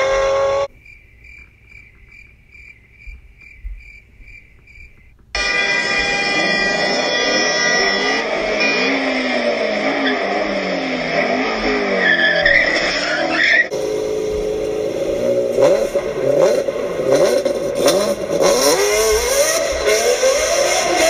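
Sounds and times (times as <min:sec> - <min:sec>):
engines revving: 0:00.0 - 0:00.8, 0:01.4 - 0:21.0
sports car engine revving hard: 0:05.9 - 0:21.0.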